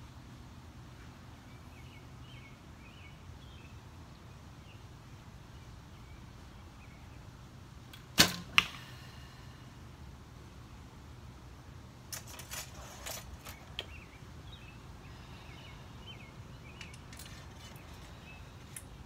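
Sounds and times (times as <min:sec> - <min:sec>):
bow string snap: 0:07.9 - 0:08.9
arrow striking foam target: 0:08.1 - 0:08.8
faint bird chirps: 0:13.5 - 0:18.8.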